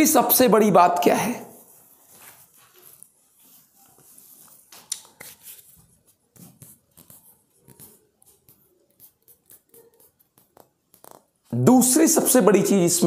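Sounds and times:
scratchy writing strokes: 1.6s - 11.5s.

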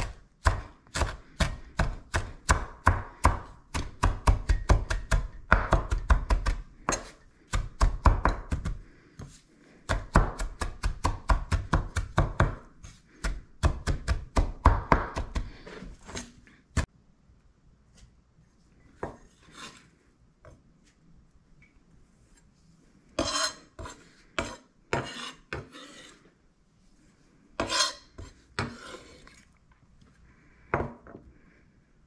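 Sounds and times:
knife chopping on wooden board: 0.0s - 8.8s, 9.9s - 16.9s.

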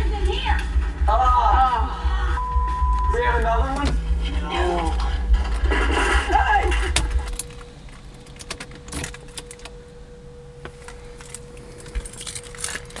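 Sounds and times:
faint steady whine: 0.0s - 13.0s
keys jangling: 11.2s - 13.0s.

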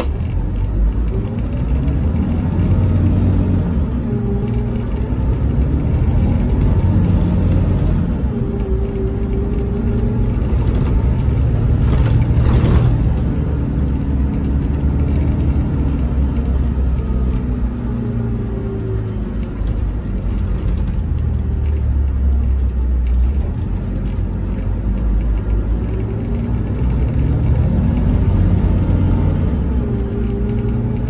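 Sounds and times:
coach engine drone: 0.0s - 31.0s.

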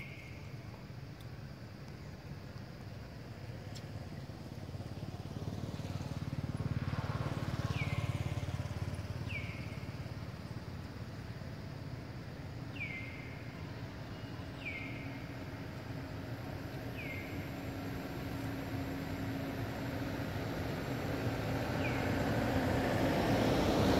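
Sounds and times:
motor vehicle passing: 4.1s - 11.4s, 14.6s - 23.9s.

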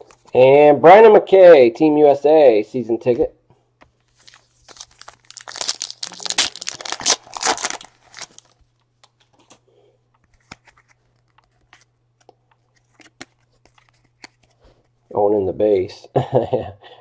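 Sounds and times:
wrapper tearing and crinkling: 4.1s - 8.6s.

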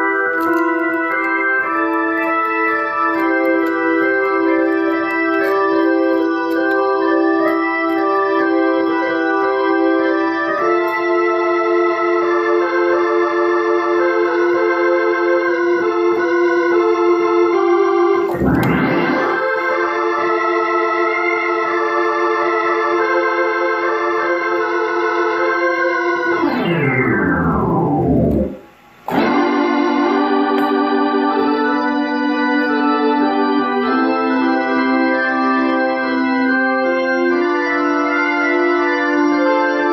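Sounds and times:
organ sustained chords: 0.0s - 39.9s.

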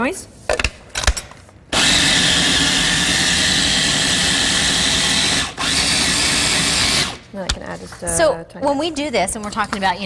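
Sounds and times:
food processor motor running: 1.8s - 7.2s.

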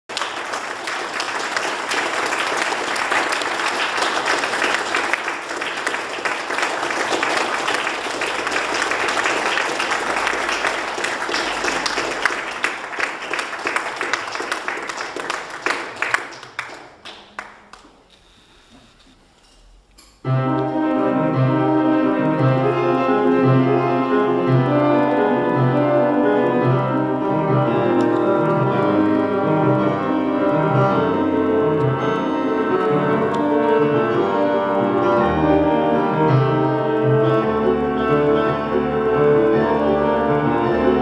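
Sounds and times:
audience applauding: 0.0s - 18.1s.

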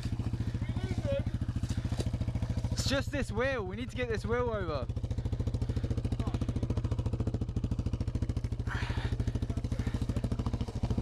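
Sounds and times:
quad bike engine idling: 0.0s - 11.0s.

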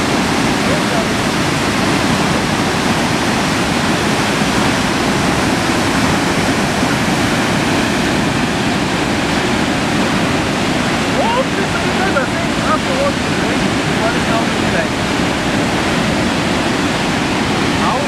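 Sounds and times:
rushing water over spillway: 0.0s - 18.0s.

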